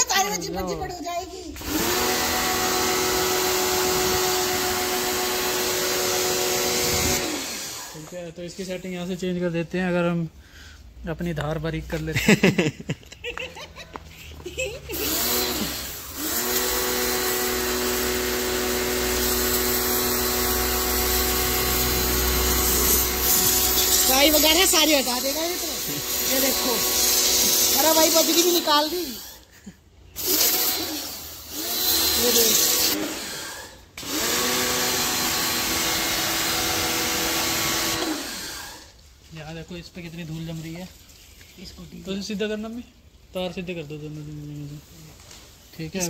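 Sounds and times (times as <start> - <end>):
pressure washer motor whine: 1.6 - 8.1, 15.0 - 29.4, 30.3 - 38.8
water jet spraying hiss: 15.1 - 29.4.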